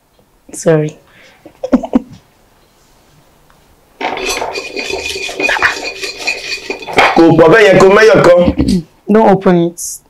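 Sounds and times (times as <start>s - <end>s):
hand rattling inside ceramic pot: 4.0s - 7.9s.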